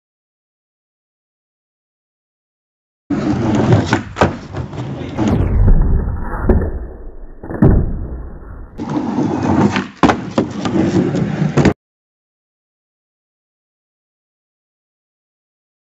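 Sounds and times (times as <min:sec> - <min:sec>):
skateboard wheels rolling on wood: 0:03.1 - 0:05.3, 0:08.7 - 0:11.8
skateboard knocks: 0:09.7 - 0:11.7.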